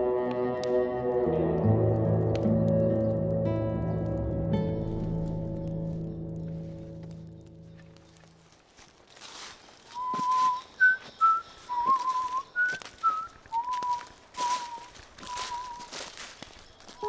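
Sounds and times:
footsteps in dry leaves: 5.1s - 17.0s
person whistling a slow tune: 10.0s - 16.1s.

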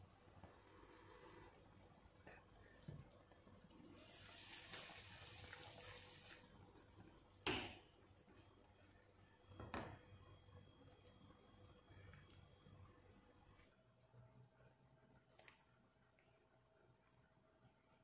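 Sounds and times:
pot simmering: 0.0s - 13.2s.

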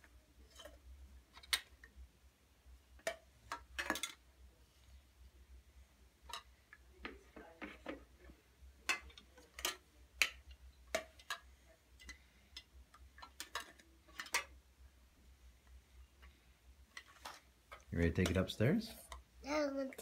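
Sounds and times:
plastic toy dishes clacking: 3.0s - 4.2s, 6.2s - 6.8s, 8.8s - 14.6s.

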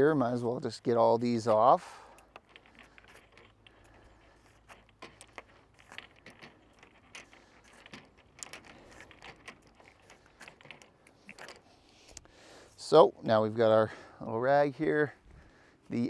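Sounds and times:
plastic end caps clicking and rubbing: 1.2s - 12.3s.

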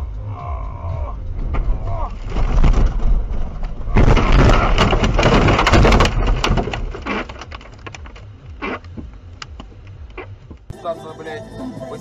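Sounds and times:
car crashing through bushes: 1.4s - 8.0s.

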